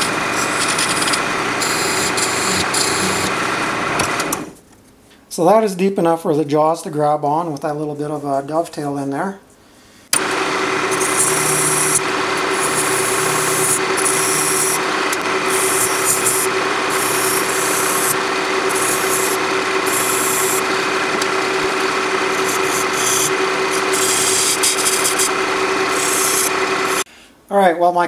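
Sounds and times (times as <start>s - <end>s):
tool scraping spinning wood: 0.0s - 4.6s, 10.2s - 27.1s
wood lathe motor hum: 0.0s - 4.6s, 10.2s - 27.1s.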